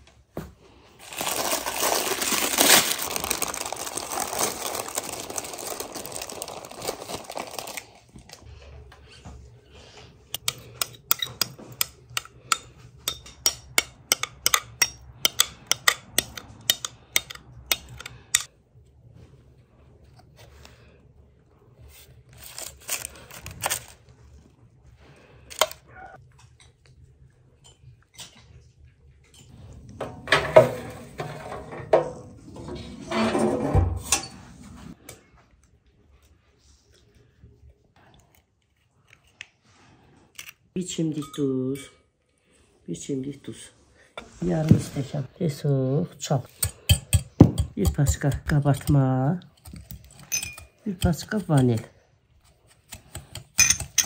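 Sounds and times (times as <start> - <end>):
utensil clinking against bowl: 10.4 - 18.5, 46.5 - 51.9, 53.3 - 54.0.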